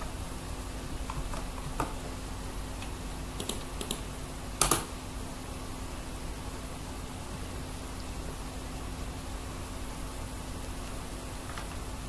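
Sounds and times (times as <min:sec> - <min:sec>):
faint steady hum: 0:00.0 - 0:12.0
computer keyboard key presses: 0:03.4 - 0:04.0, 0:04.6 - 0:04.9.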